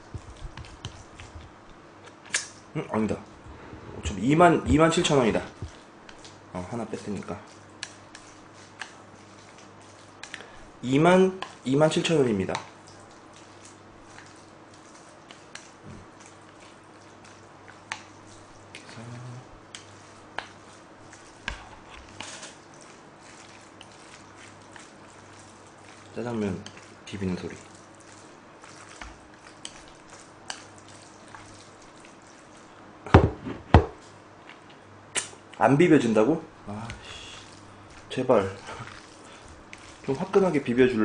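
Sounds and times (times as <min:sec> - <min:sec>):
noodles being chewed: 0:00.0 - 0:02.6, 0:04.8 - 0:10.8, 0:12.4 - 0:32.8, 0:36.7 - 0:40.7
steady low hum: 0:00.0 - 0:11.8
bowl knocking on table: 0:33.1 - 0:34.0.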